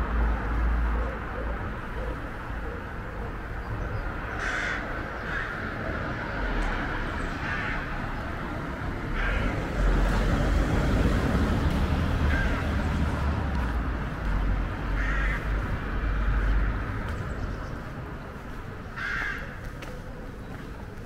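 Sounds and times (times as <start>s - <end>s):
harsh bird calls: 2.0s - 6.0s.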